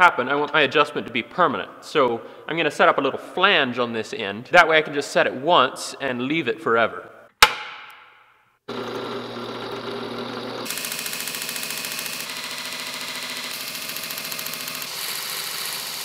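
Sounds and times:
belt grinder motor humming: 8.7 - 16.0
steel grinding on abrasive belt: 8.8 - 16.0.

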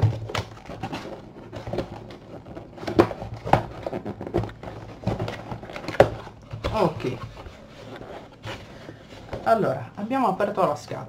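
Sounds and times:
cardboard box knocks and clicks: 0.0 - 7.4.

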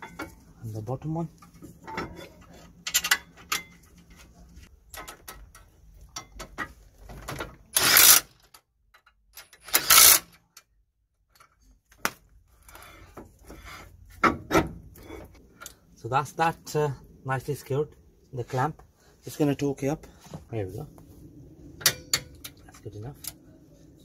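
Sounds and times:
power driver running bolt: 7.8 - 8.2.

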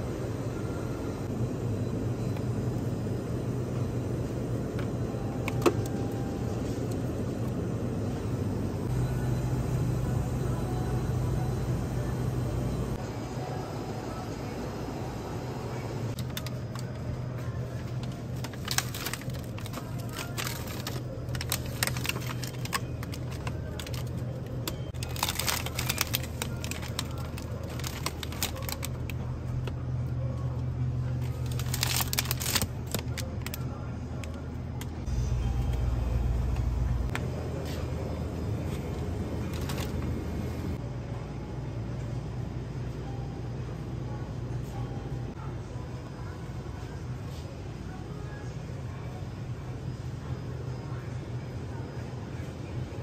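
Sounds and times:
drinks cooler humming: 0.0 - 40.8
plastic packaging crinkling: 17.8 - 29.2, 31.2 - 33.6, 39.5 - 40.1.

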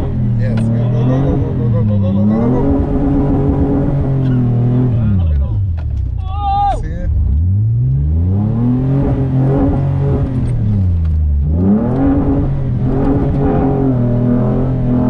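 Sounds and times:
truck engine revving: 0.0 - 6.1, 6.8 - 15.0.

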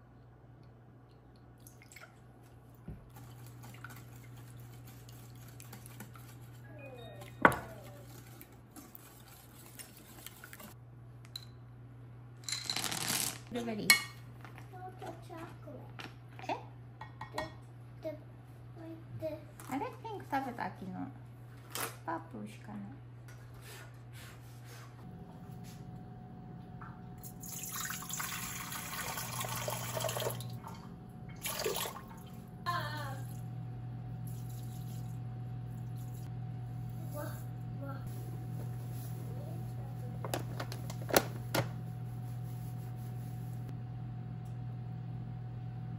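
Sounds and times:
berries rattling into bowl: 12.5 - 13.5
steady low hum: 22.3 - 45.9
water pouring into metal bowl: 27.4 - 30.7.

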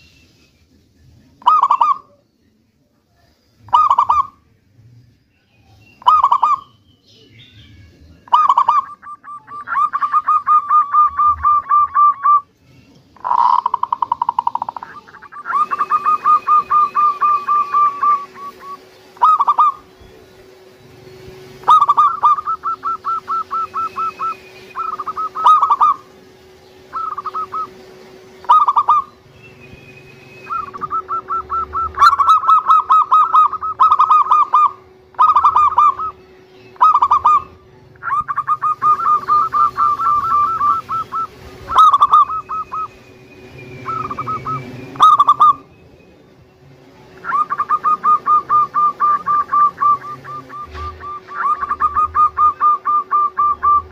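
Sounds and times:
faint steady hum: 0.0 - 53.9
dove cooing: 1.4 - 2.2, 3.7 - 4.4, 6.0 - 6.6, 8.2 - 12.5, 13.2 - 20.7, 21.3 - 26.2, 26.9 - 29.2, 30.4 - 36.2, 36.8 - 43.0, 43.7 - 45.7, 47.2 - 53.9.

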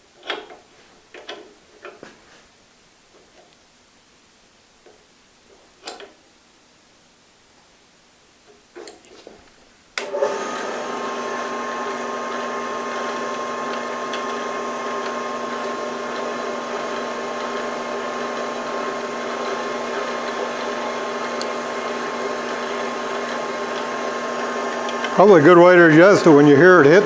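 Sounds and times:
bandsaw motor hum: 10.0 - 27.0.

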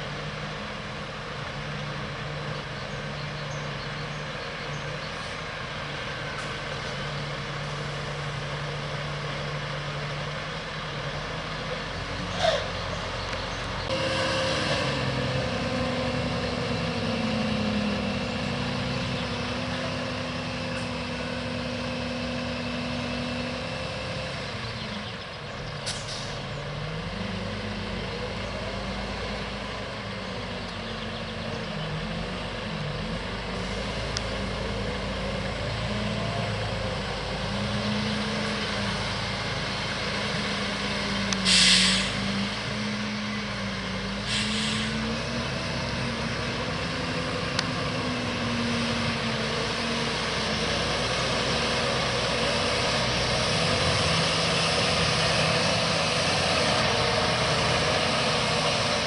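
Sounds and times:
diesel engines running: 0.0 - 59.0
short sharp hiss: 41.4 - 42.2, 44.3 - 45.0.

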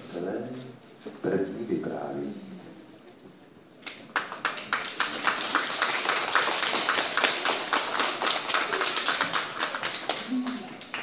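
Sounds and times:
crowd applauding: 4.1 - 11.0.

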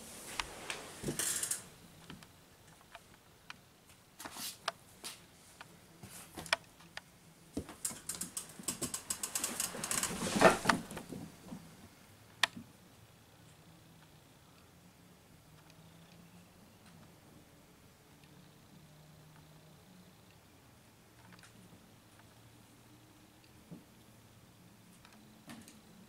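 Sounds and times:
rustling scuffle: 9.2 - 11.3.

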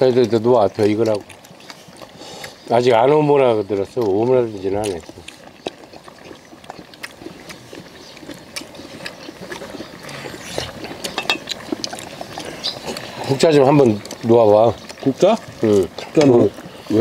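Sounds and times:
lips smacking and sucking: 0.7 - 2.7, 4.8 - 17.0.

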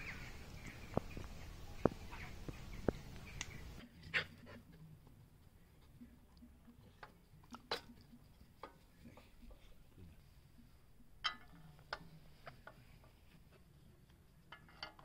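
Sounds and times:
faint sharp clicks: 0.5 - 3.7.

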